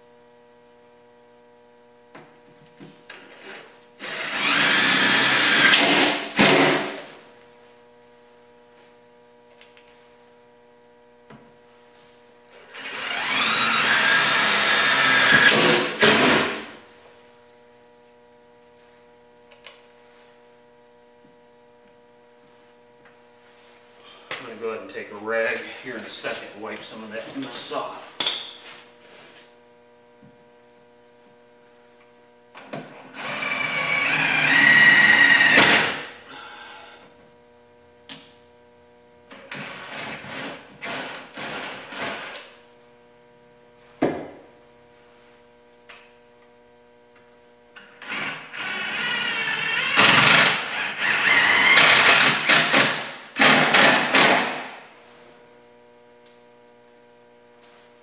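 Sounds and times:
steady low hum: 0.0 - 39.4, 40.2 - 48.6
power drill driving screws: 4.0 - 6.7, 12.6 - 16.6, 33.1 - 35.9, 48.0 - 54.6.

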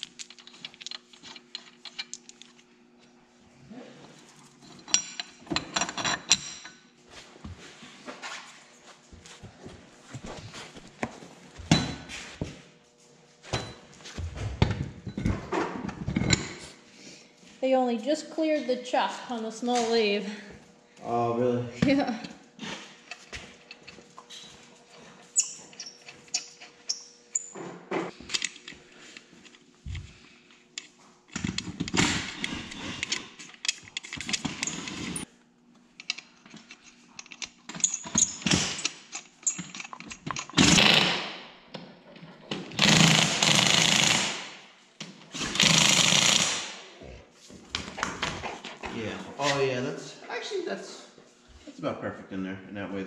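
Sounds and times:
power driver spinning nuts: 42.7 - 44.4, 45.4 - 46.7.

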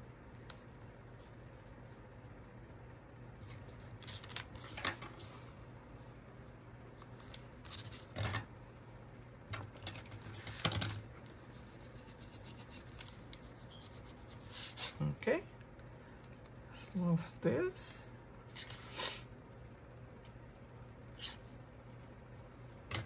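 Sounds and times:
paper rustling: 3.4 - 5.5, 7.0 - 8.4.

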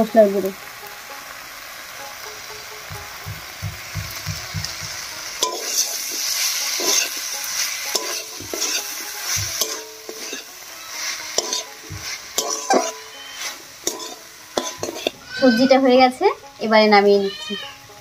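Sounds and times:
vegetables sizzling in a pan: 0.0 - 18.0
spatula scraping a metal pan: 5.4 - 15.8.

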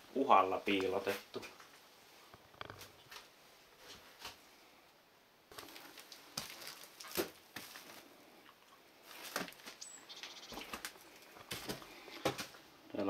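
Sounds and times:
debris crunching underfoot: 5.5 - 8.2, 9.0 - 9.9, 10.5 - 12.6
footsteps on littered floor: 5.5 - 8.2, 9.0 - 9.9, 10.5 - 12.6.

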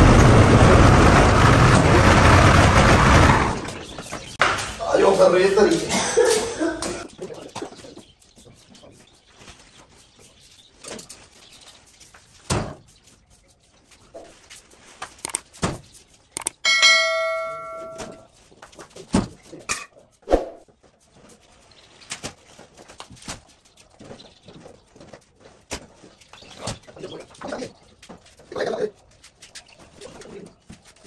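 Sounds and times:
metallic ring: 16.5 - 18.2.

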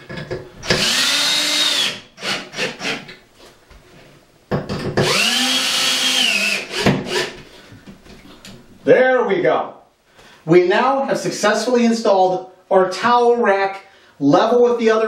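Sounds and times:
cordless drill driving screws: 0.6 - 3.1, 5.0 - 7.4.

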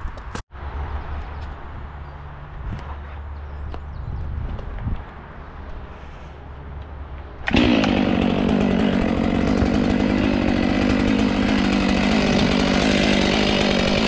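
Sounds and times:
chainsaw revving high: 7.5 - 14.0.

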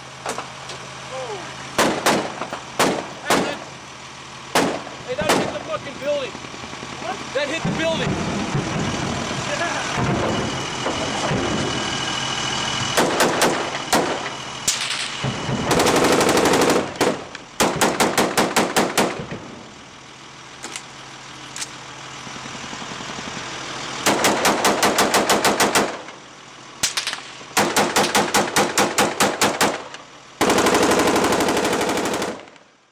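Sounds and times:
automatic gunfire bursts: 15.7 - 19.2, 24.0 - 26.0, 27.6 - 32.5.

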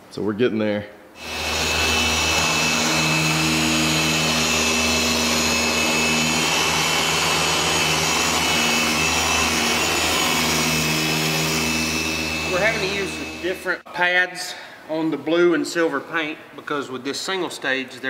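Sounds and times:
electric polisher motor whining: 1.2 - 13.8.

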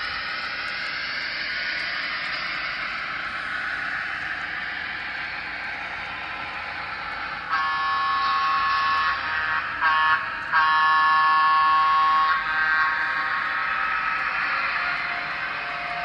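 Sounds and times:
model locomotive running sound: 0.0 - 16.0
model locomotive horn blasts: 7.4 - 16.0.

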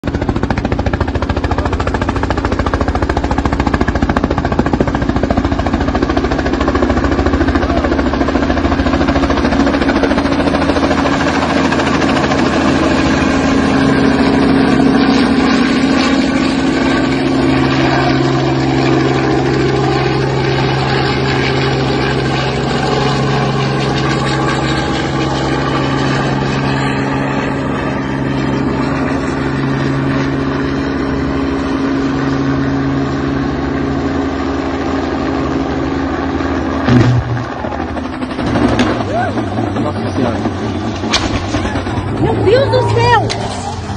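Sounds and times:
helicopter engine and rotor hum: 0.0 - 43.9.

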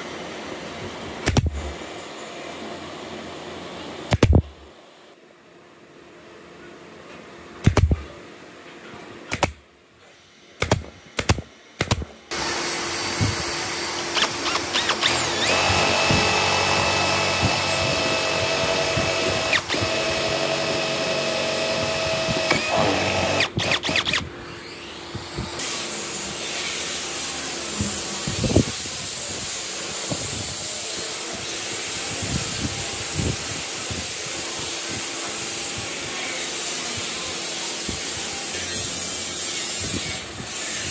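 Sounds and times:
nail gun shots: 1.2 - 1.8, 4.1 - 4.6, 7.6 - 8.1, 9.3 - 9.6, 10.6 - 12.4, 13.2 - 24.3
cordless drill boring wood: 12.3 - 28.8.

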